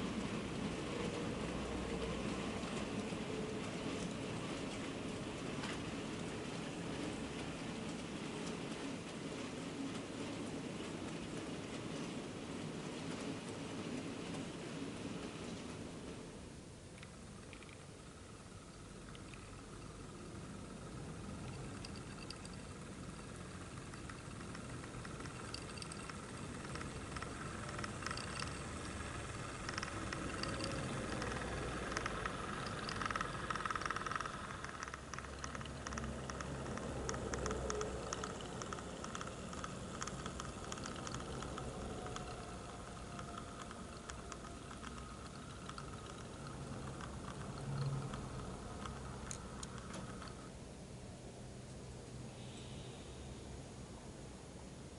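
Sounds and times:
small wheels clicking on track: 0.0s - 50.5s
electric motor hum: 17.1s - 50.6s.

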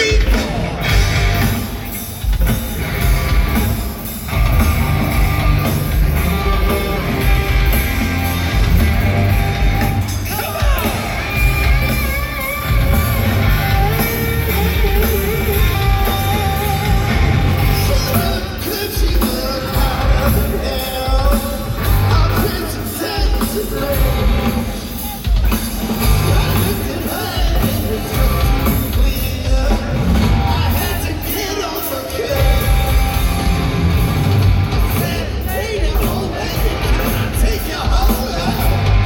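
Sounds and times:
drums: 0.0s - 39.0s
electric guitars: 0.0s - 39.0s
male singer: 15.8s - 25.2s, 26.2s - 32.8s, 34.9s - 39.0s.

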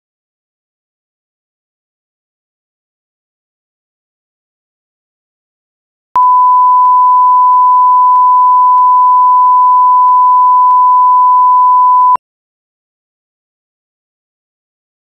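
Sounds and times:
steady reference tone beep: 6.2s - 12.2s.

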